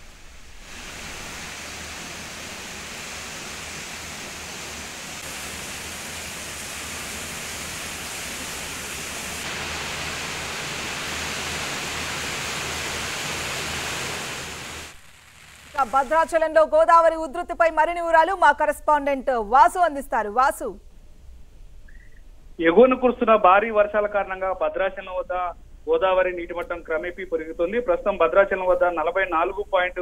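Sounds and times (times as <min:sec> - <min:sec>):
rushing water: 0:00.0 - 0:16.3.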